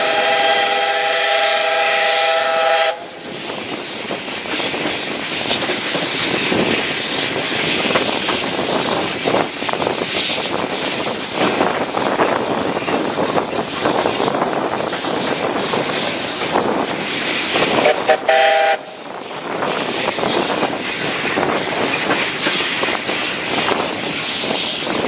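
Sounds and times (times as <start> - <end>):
steam locomotive whistle: 0.0 - 3.2, 17.8 - 19.0
moving train rushing noise: 0.0 - 25.0
wheels clattering on rails: 3.3 - 18.3, 19.1 - 25.0.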